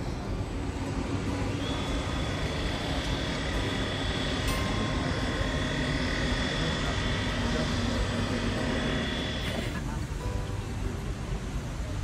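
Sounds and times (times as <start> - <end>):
machinery hum: 0.0 - 12.0
high-pitched whines: 1.3 - 9.7.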